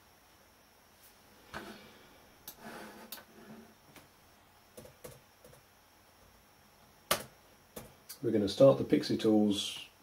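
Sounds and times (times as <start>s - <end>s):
laptop keyboard clicks: 7.1s - 7.9s.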